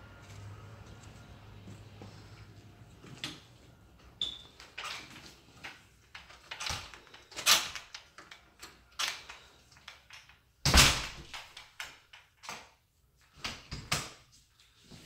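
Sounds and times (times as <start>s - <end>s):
footsteps on hardwood floor: 0.0s - 3.8s.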